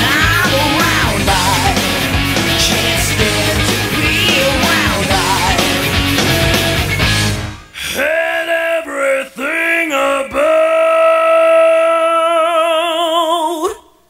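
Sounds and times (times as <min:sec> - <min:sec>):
solo voice singing: 0:00.0 - 0:05.9, 0:07.8 - 0:14.0.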